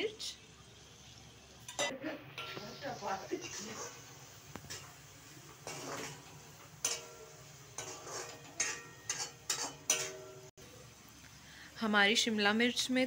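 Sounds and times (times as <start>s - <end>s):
metal spatula scraping a metal pan: 1.7s - 10.5s.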